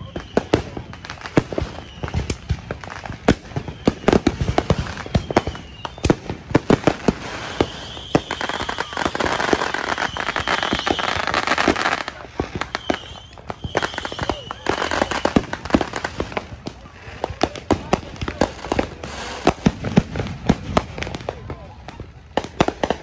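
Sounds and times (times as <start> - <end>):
high firework whistle: 0.0 - 16.4
firecrackers banging and popping: 0.0 - 23.0
fireworks crackling hiss: 0.0 - 23.0.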